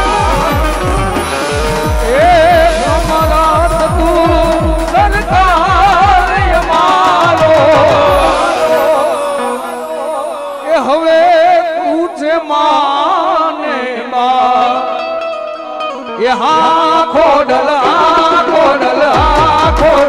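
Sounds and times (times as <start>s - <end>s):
held drone note: 0.0s - 4.9s, 8.1s - 10.9s
low drumming: 0.0s - 9.1s
ornamented melody line: 0.0s - 11.4s.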